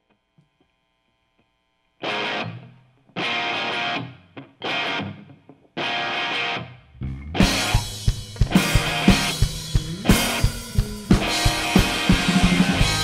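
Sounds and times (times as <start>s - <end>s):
distorted electric guitar chords: 2.0s - 13.0s
amp hum: 6.3s - 13.0s.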